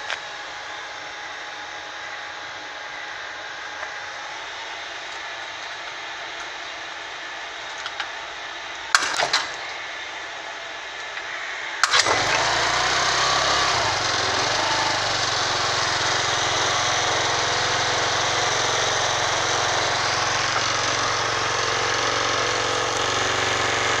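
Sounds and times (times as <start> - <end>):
kick-start lever clack: 9.0 - 9.9, 11.8 - 22.4
scooter engine revving and idling: 11.8 - 24.0.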